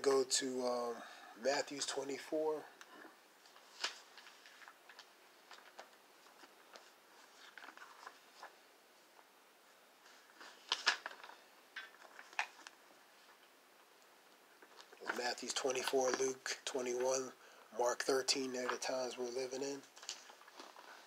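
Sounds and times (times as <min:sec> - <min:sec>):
book pages rustling: 0:02.8 - 0:09.3, 0:10.0 - 0:17.3, 0:19.7 - 0:21.0.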